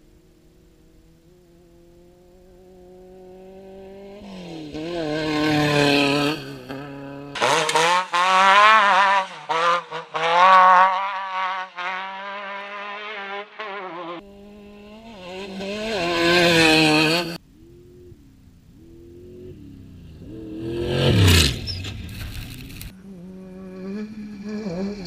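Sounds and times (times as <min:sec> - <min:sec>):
race buggy engine at full throttle: 0:00.6 - 0:25.0
race buggy engine passing: 0:00.6 - 0:25.0.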